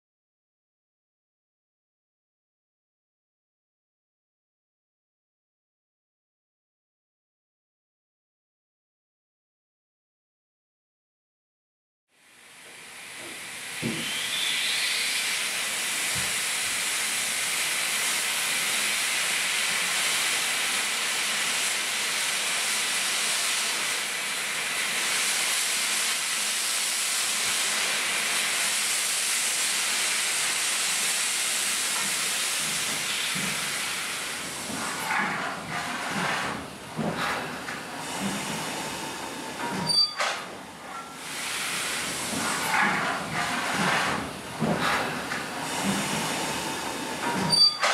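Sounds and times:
steam hissing: 0:12.5 - 0:47.9.

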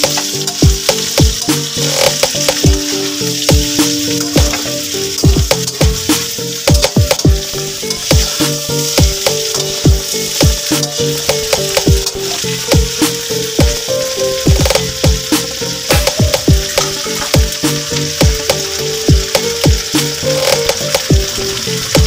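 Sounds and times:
metal spatula scraping a wok: 0:00.0 - 0:06.7, 0:07.6 - 0:13.6, 0:16.7 - 0:18.2
background music with a beat: 0:00.0 - 0:22.0
meat sizzling in oil: 0:00.0 - 0:22.0.

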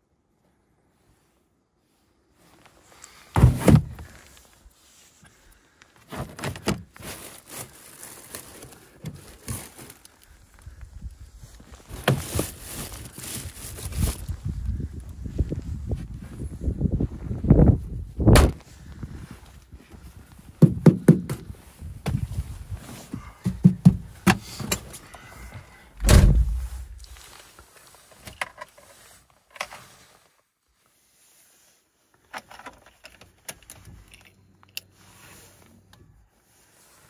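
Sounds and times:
knocks and rustling: 0:03.4 - 0:04.2, 0:23.1 - 0:25.0, 0:26.0 - 0:27.2
car doors shutting: 0:26.0 - 0:26.9.

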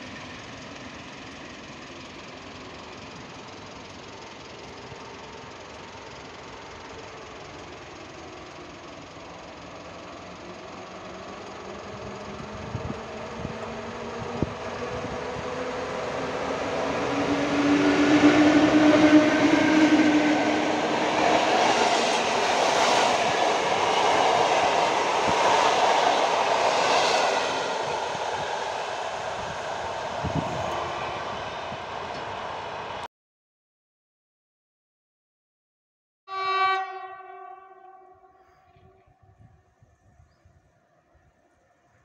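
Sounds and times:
electric locomotive hum: 0:00.0 - 0:33.1, 0:36.3 - 0:42.0
train wheels rushing on rails: 0:00.0 - 0:33.1.

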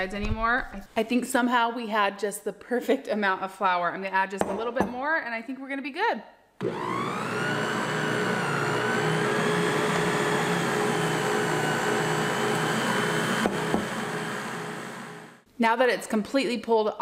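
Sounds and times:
stand mixer motor whining: 0:06.6 - 0:15.4.

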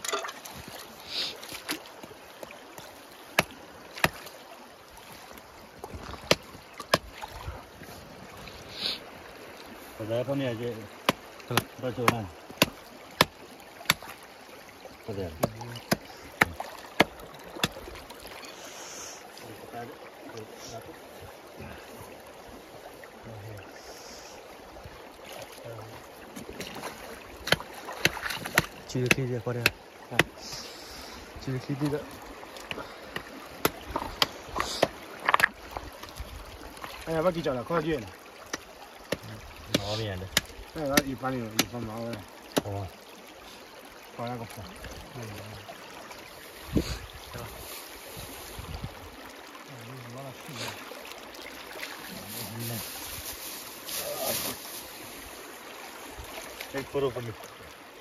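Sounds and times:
creek rushing: 0:00.0 - 0:58.0
hatchet chopping bone: 0:03.4 - 0:04.2, 0:06.2 - 0:07.1, 0:11.0 - 0:14.1, 0:15.4 - 0:17.8, 0:27.4 - 0:30.5, 0:38.5 - 0:42.8.

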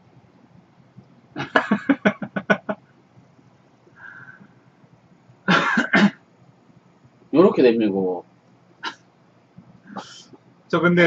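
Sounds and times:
man laughing: 0:01.4 - 0:02.8, 0:05.5 - 0:06.0.

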